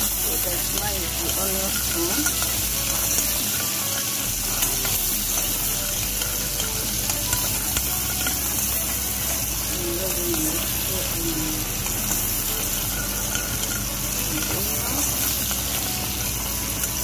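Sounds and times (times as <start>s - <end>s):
metal spoon stirring: 0.0s - 17.0s
vegetables sizzling in hot oil: 0.0s - 17.0s.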